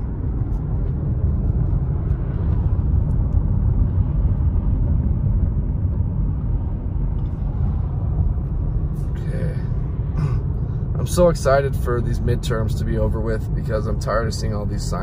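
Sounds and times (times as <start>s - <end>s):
car driving low rumble: 0.0s - 15.0s.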